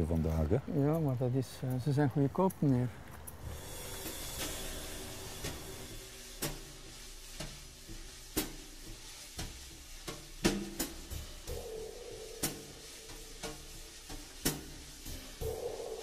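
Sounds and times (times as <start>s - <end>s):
low held tones: 11.5s - 14.2s.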